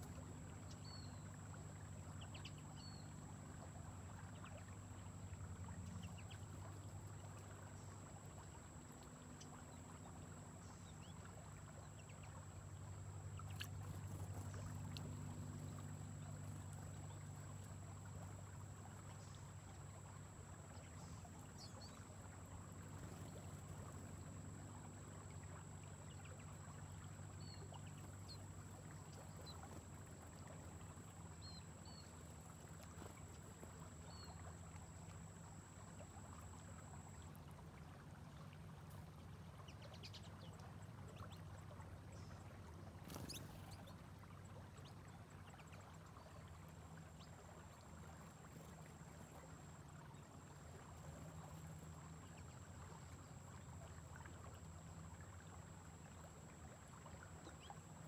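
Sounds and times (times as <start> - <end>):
faint low hum: 0.0 - 58.0
small birds chirping: 43.0 - 44.0.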